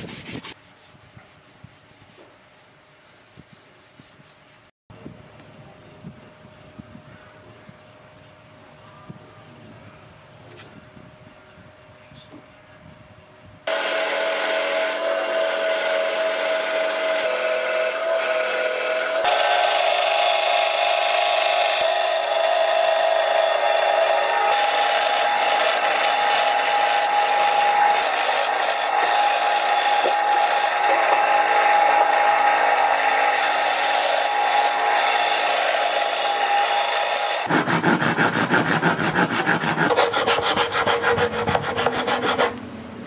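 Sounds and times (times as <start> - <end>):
back-and-forth rasping strokes: 0.0 - 4.7, 6.0 - 10.8, 13.7 - 42.6
power tool whine: 13.7 - 37.6.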